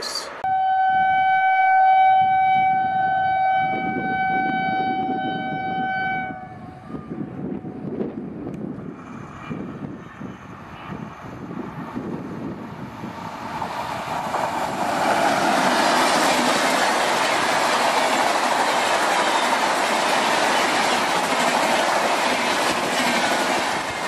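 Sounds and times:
train horn blast: 0.4 - 7.8
train rumbling on track: 2.2 - 24.0.

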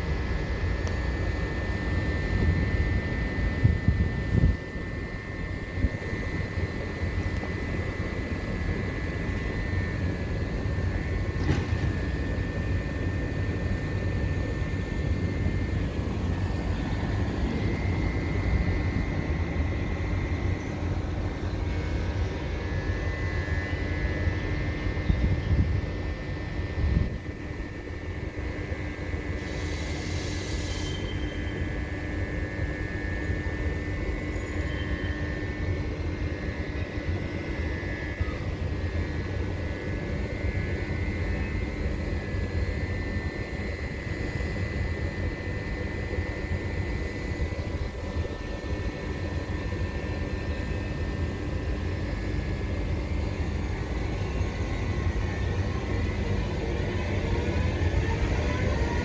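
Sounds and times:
electric train humming: 0.0 - 59.0
high steady whine: 0.0 - 59.0
air hiss: 29.4 - 31.0.

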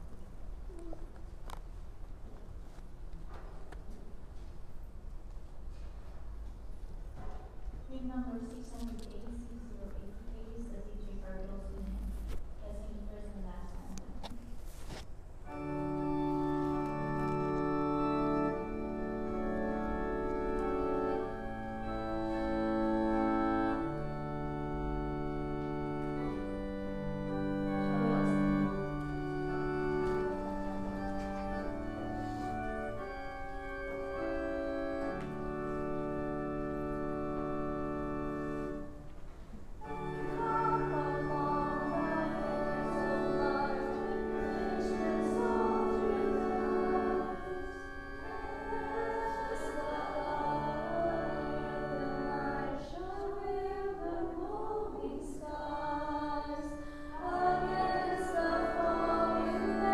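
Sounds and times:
organ playing held chords: 15.4 - 53.6, 55.7 - 59.9
voices singing a hymn: 15.6 - 38.9, 39.8 - 59.9.

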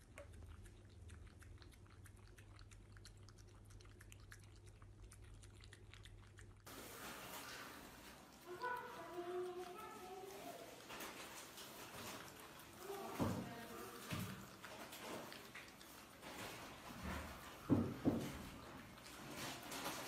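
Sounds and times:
puppy chewing and lip-smacking: 0.0 - 20.0.

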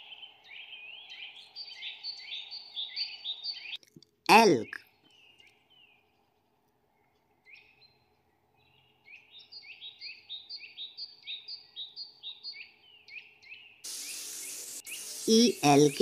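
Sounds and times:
short high chirping calls: 13.8 - 16.0.

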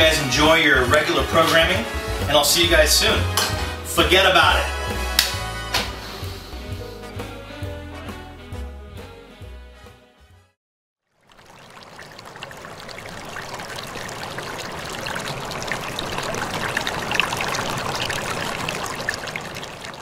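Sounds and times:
running water: 11.1 - 20.0.

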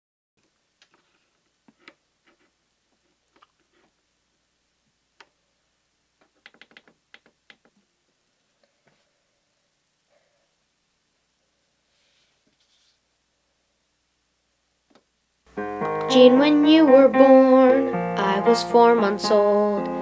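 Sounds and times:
piano keys clacking: 15.5 - 20.0.

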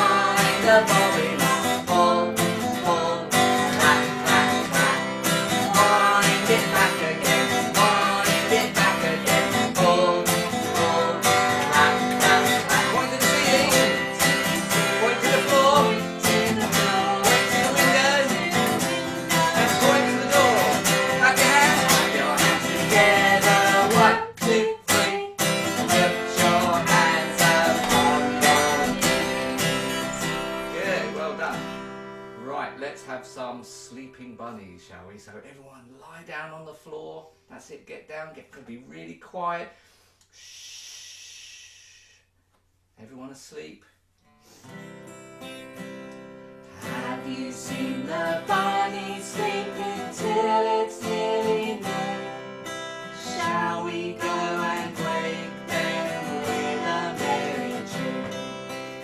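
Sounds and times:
man and woman singing: 0.0 - 31.8, 46.7 - 59.0
acoustic guitar strumming: 0.0 - 35.0, 44.6 - 59.0.

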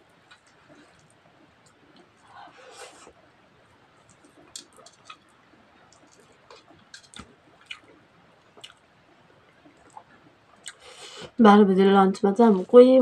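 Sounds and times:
fingers mixing food on metal plate: 4.0 - 5.3
chewing mouth clicks and smacks: 5.9 - 8.0, 8.6 - 8.8.

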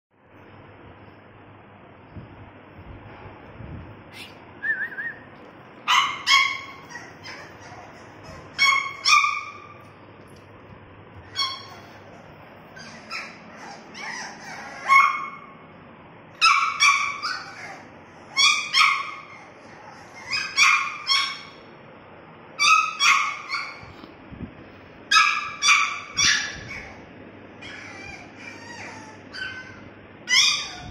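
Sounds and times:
puppy yipping and whimpering: 5.9 - 9.8, 11.2 - 15.5, 16.4 - 21.6, 22.6 - 24.0, 25.1 - 30.9.

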